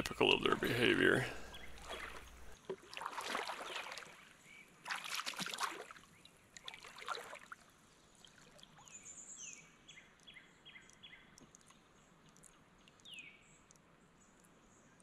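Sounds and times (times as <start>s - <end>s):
river water splashing: 0.0s - 9.1s.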